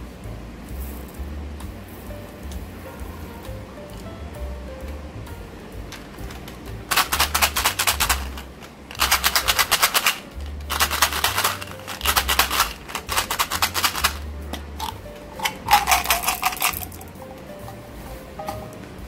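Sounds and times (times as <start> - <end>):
plastic cap ratcheting clicks: 6.2 - 17.1.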